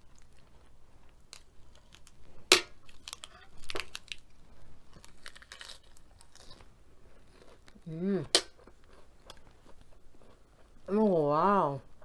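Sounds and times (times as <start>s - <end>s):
lettuce leaf crinkling and snapping: 1.3s - 2.2s, 2.8s - 4.3s, 4.9s - 6.6s
crunchy bite into lettuce: 4.9s - 6.7s.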